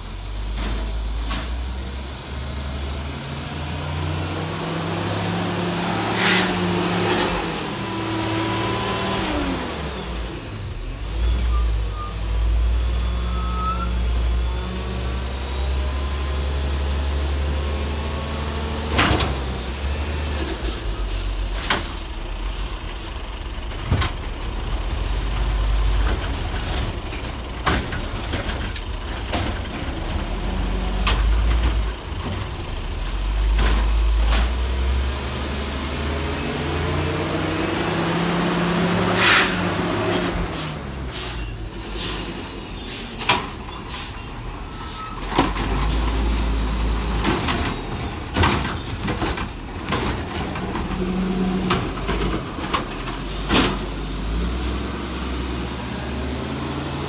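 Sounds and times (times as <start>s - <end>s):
garbage truck diesel engine revving: 0.0s - 57.0s
air brakes hissing: 37.2s - 45.3s.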